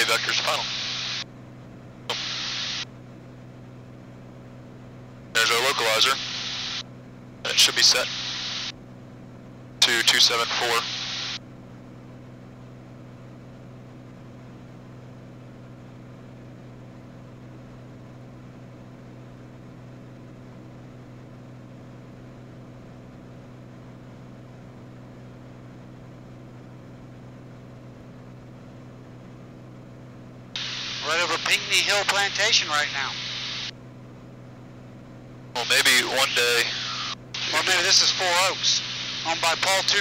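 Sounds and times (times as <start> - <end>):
propeller plane engine droning: 0.0 - 18.4, 27.5 - 40.0.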